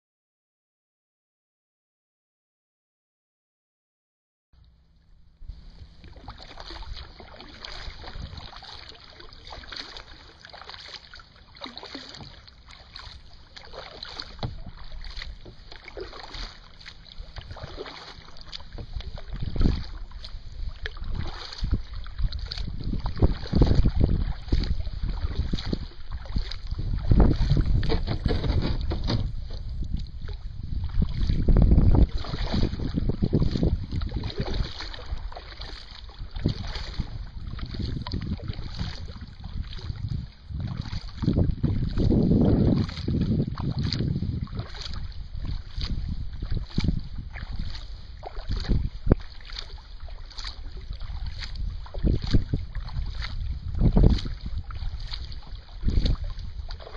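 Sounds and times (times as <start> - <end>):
paddle splashing in water: 4.6 - 56.9
wind buffeting microphone: 5.4 - 8.7, 18.6 - 56.9.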